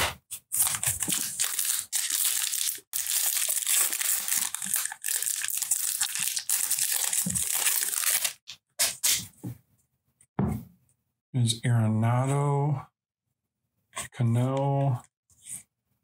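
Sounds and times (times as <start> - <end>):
foil wrapper crinkling: 0.5 - 8.5.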